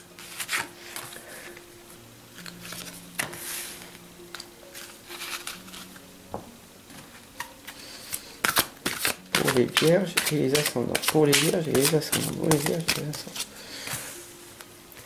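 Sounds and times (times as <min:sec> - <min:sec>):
faint background music: 0:00.0 - 0:15.0
cards tapping and sliding on mat: 0:02.7 - 0:03.4, 0:08.4 - 0:14.0.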